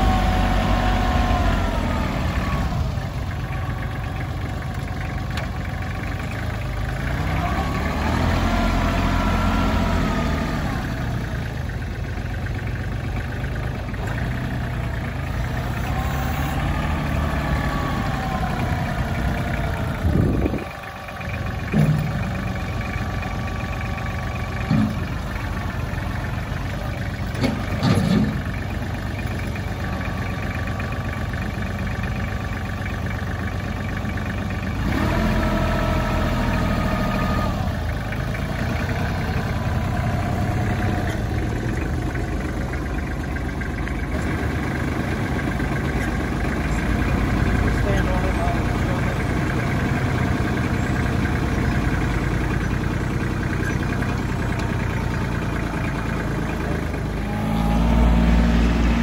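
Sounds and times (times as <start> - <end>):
tractor diesel engine running: 0.0 - 59.0
short clunks: 21.6 - 22.6, 24.5 - 25.2, 27.2 - 28.6.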